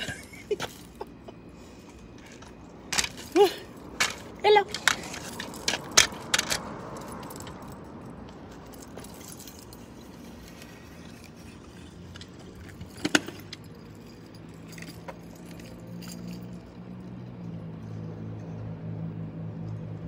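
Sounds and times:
scooter wheels rolling on concrete: 0.0 - 16.9
metal clicks of scooter handlebar: 4.0 - 6.7.

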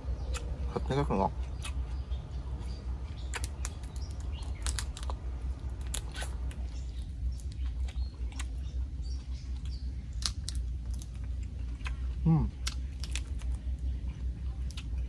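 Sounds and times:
low hum: 0.0 - 15.0
person chewing with mouth clicks: 1.3 - 2.0, 9.5 - 13.5.

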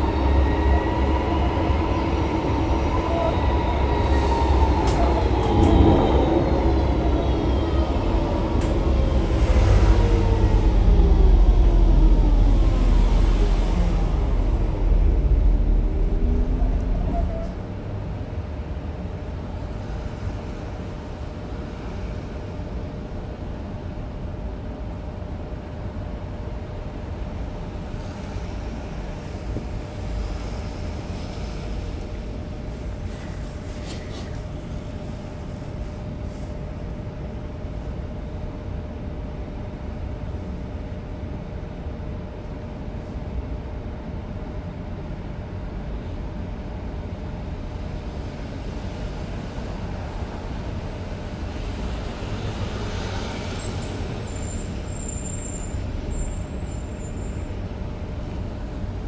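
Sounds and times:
heavy rumble: 0.0 - 20.5
tram electric drive whine: 0.0 - 59.0.

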